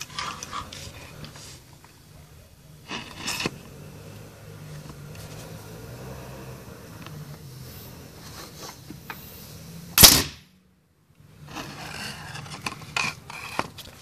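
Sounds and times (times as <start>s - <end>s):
air gun blast: 10.0s - 10.4s.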